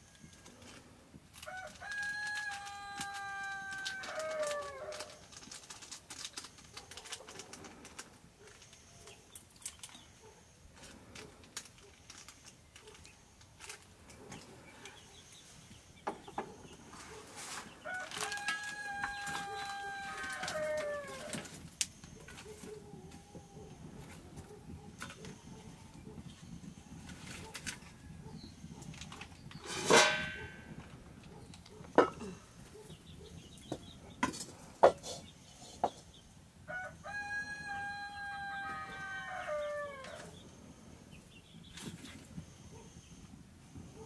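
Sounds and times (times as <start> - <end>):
wood fire crackling: 0.0 - 42.6
rooster crowing: 1.4 - 5.2, 17.8 - 21.6, 36.7 - 40.4.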